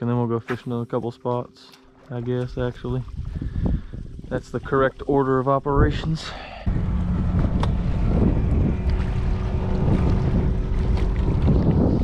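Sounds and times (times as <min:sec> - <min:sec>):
wind buffeting microphone: 0:02.4 - 0:12.0
outboard motor humming: 0:06.6 - 0:12.0.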